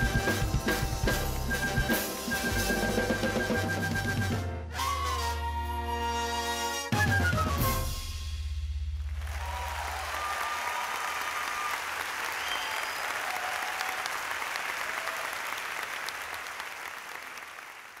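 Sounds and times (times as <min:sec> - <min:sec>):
whistles from audience: 0:00.0 - 0:06.1, 0:06.9 - 0:08.0, 0:09.4 - 0:14.2
audience applauding: 0:09.1 - 0:18.0.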